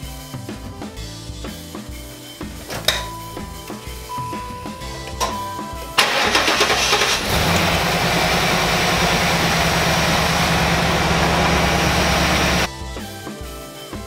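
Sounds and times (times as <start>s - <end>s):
car engine running: 6.0s - 12.7s
car starter cranking: 6.0s - 12.7s.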